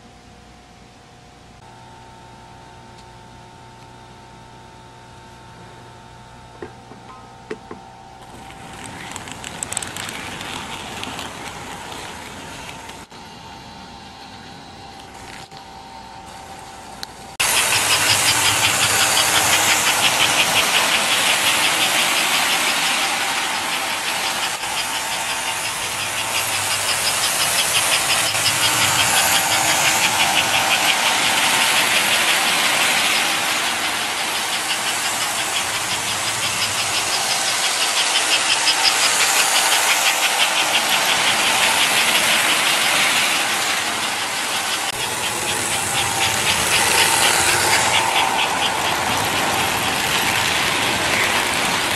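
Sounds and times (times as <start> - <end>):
toy train motor hum: 8.2 - 13.1, 17.0 - 51.9
wheels clattering on rails: 8.2 - 13.1, 17.3 - 51.9.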